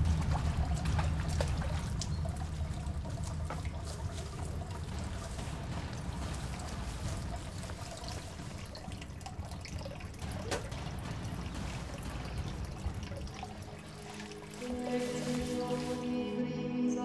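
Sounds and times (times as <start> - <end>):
water pouring into fountain trough: 0.0 - 16.1.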